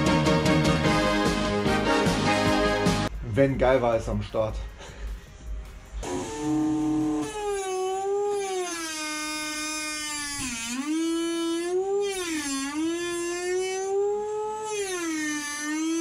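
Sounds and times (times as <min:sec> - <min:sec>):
rotary tool grinding metal: 0:06.1 - 0:16.0.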